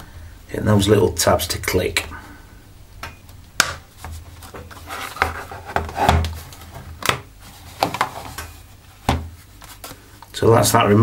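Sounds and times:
plastic cover scraping and rubbing: 4.0s - 10.0s.

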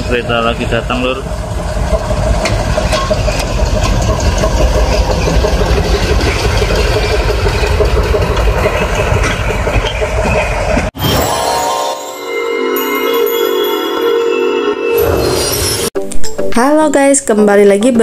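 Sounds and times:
diesel locomotive engine rumble: 0.0s - 11.0s.

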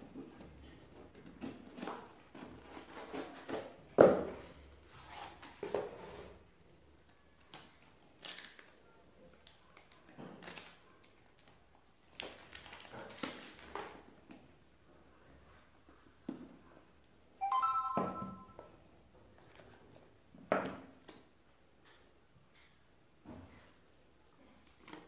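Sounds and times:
cardboard and paper rustling: 0.1s - 6.4s.

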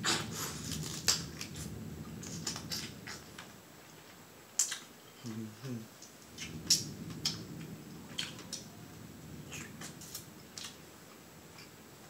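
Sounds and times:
wet clicks and crackles: 2.2s - 3.6s, 4.6s - 4.9s, 8.1s - 8.7s, 9.5s - 10.8s.

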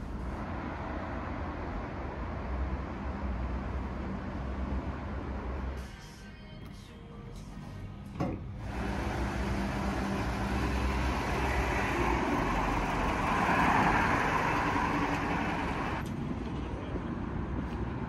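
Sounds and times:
car driving by: 8.6s - 16.0s
garbage truck engine running: 8.6s - 16.0s.

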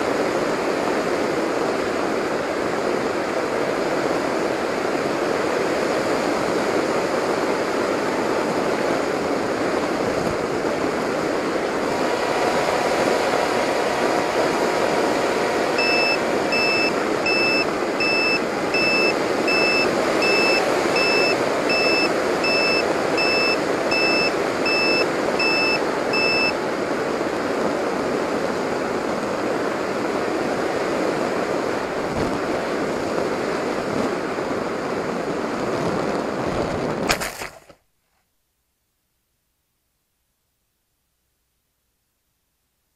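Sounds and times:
air rushing with motor noise: 0.0s - 37.1s
high electronic beeps: 15.8s - 26.6s.

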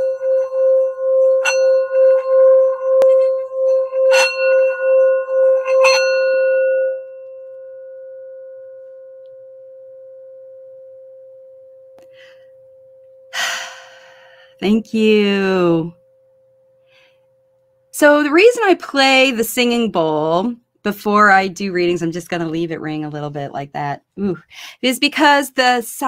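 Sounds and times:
singing bowl ringing hum: 0.0s - 20.5s
mallet knocking on bowl: 4.1s - 6.8s.

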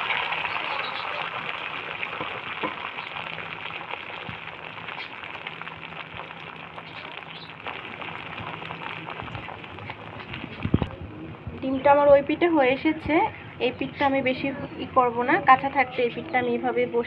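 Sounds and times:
egg sizzling in hot oil: 0.0s - 14.0s.

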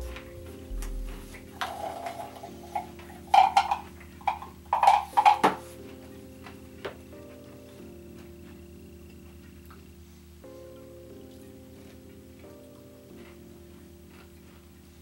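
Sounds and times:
nuts rattling in a metal can: 1.6s - 5.6s.

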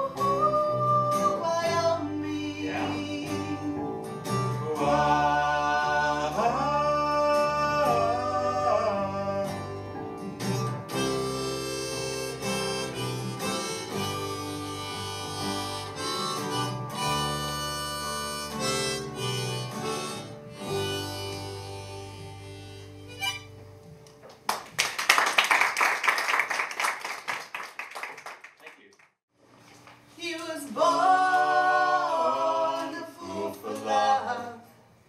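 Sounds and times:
strummed acoustic guitars: 0.0s - 23.8s
harmonica bending notes: 10.8s - 24.0s.

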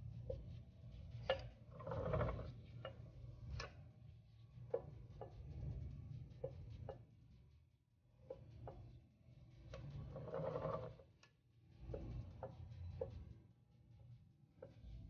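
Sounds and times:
low steady hum: 0.0s - 10.3s.

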